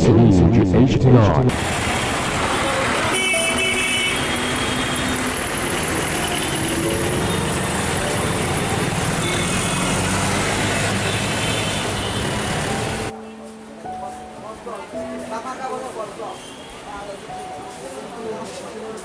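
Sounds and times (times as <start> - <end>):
traffic: 0.0 - 19.0
vehicle engines running: 1.5 - 13.1.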